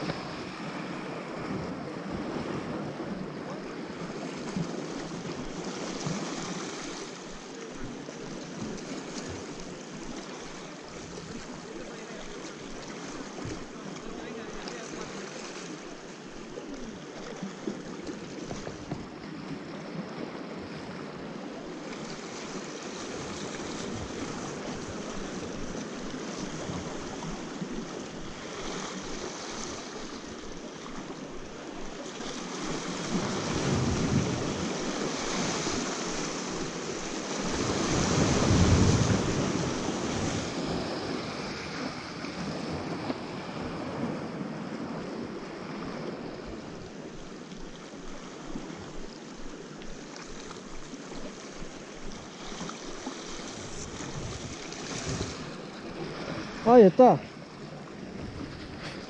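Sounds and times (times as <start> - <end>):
sea waves breaking: 0.0 - 59.0.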